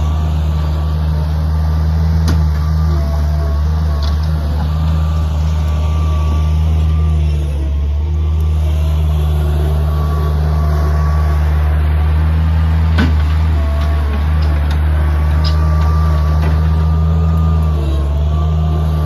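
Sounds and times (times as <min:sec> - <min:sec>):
skid steer engine running: 0:00.0 - 0:19.0.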